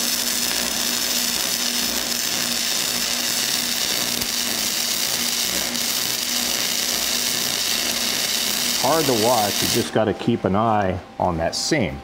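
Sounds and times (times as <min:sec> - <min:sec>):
arc welding sizzling crackle: 0:00.0 - 0:11.0.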